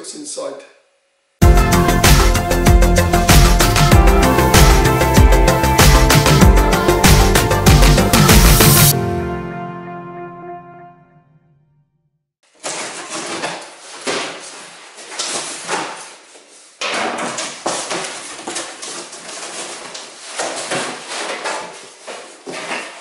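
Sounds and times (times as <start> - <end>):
cardboard scraping and rustling: 12.5 - 23.0.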